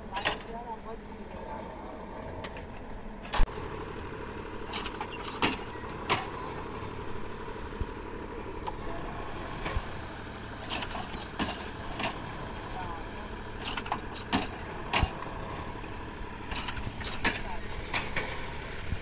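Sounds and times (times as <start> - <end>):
machine engine running: 0.0 - 19.0
sharp knocks and clanks: 4.7 - 6.4, 10.6 - 12.3, 13.6 - 15.4, 16.5 - 18.5.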